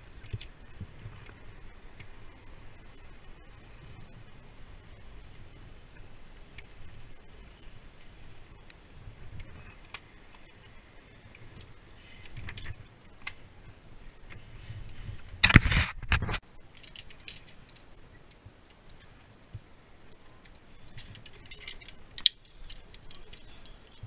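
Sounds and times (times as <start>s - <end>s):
metal climbing hardware clinking: 16.7s - 18.0s, 20.4s - 24.0s.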